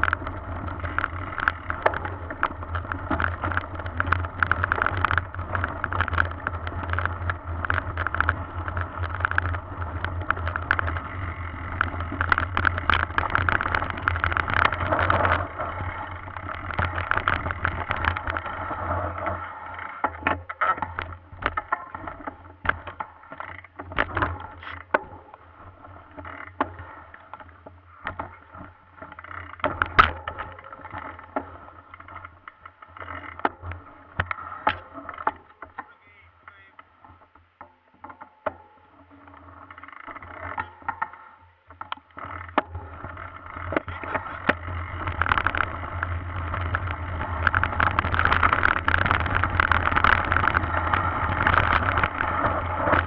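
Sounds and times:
bike rattling over bumps: 0.0s - 53.0s
wind: 0.0s - 53.0s
tyres rushing on gravel: 35.6s - 36.8s.

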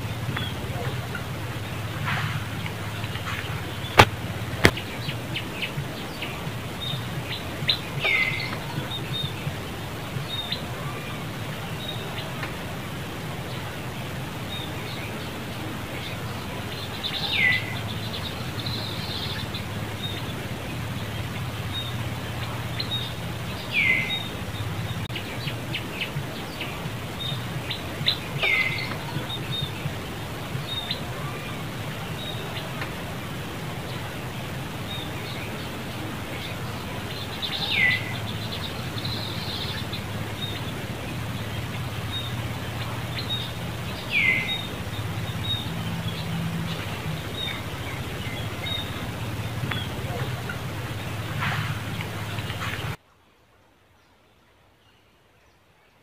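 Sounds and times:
steady low hum: 0.0s - 53.0s.

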